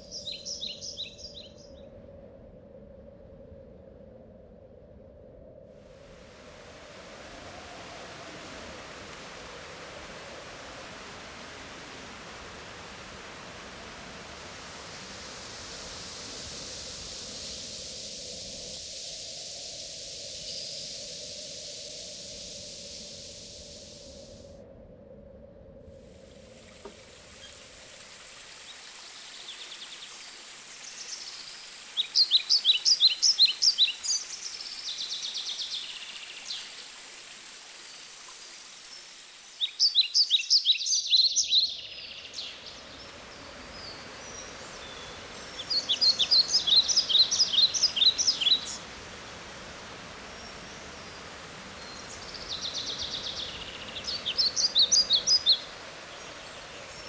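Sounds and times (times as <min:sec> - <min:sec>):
birds chirping and trilling: 0:00.0 - 0:01.8, 0:43.8 - 0:48.8, 0:51.8 - 0:55.7
running water: 0:06.0 - 0:24.0, 0:26.2 - 0:40.5, 0:42.0 - 0:57.0.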